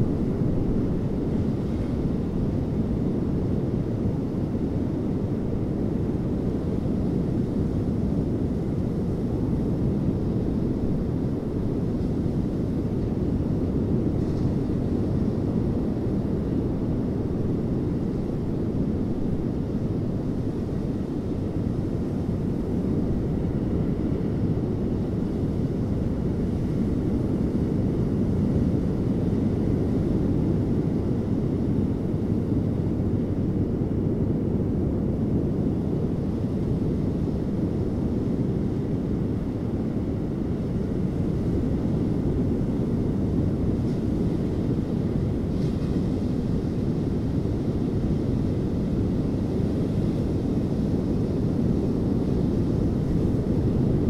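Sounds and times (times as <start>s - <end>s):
ocean surf rumble: 0.0s - 54.0s.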